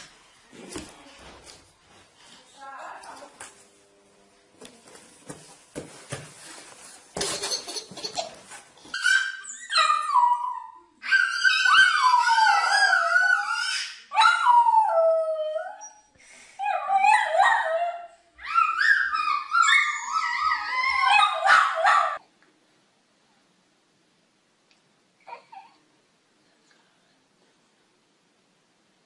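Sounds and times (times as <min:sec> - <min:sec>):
small dog howling: 0:10.0 - 0:15.8.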